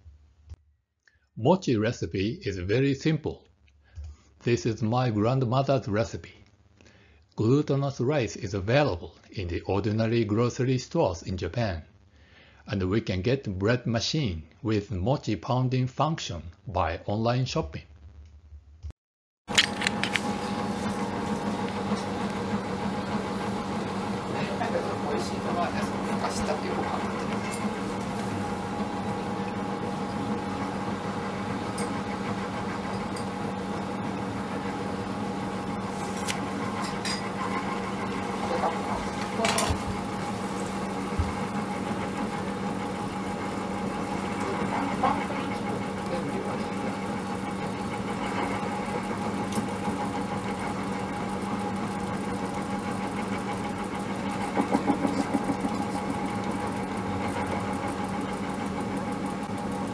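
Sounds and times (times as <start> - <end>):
machine motor humming: 19.5 - 59.9.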